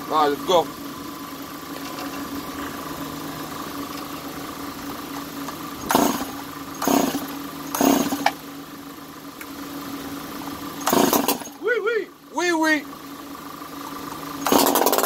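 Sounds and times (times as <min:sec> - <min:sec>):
chainsaw idling and revving: 0:05.8 - 0:08.4, 0:10.8 - 0:11.7, 0:14.3 - 0:15.0.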